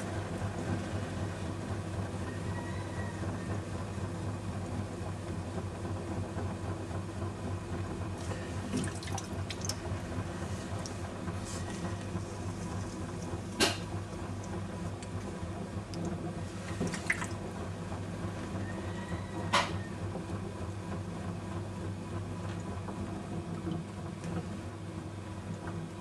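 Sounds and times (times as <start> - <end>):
potter's wheel humming: 0.0 - 26.0
water dripping: 8.7 - 9.9.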